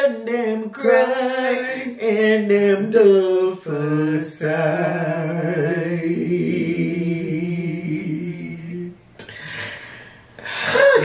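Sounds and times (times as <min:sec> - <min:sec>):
men singing a capella: 0:00.0 - 0:09.8
breathy laughter: 0:10.4 - 0:11.0.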